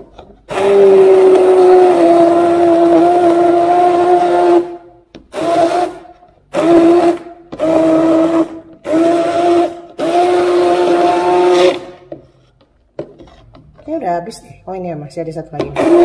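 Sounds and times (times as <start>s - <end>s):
hand blender motor whining: 0.5s - 12.1s, 15.7s - 16.0s.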